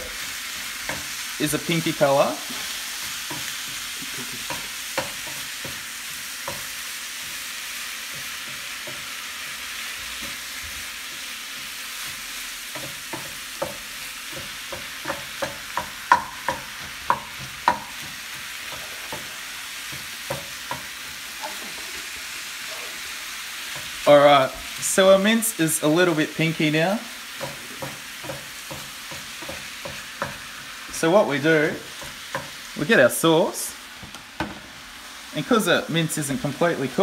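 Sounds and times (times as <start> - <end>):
food sizzling in a frying pan: 0.0 - 37.0
spoon scraping and tapping a pan: 3.0 - 6.8, 8.0 - 9.2, 12.0 - 22.0, 27.3 - 30.7, 32.0 - 32.6.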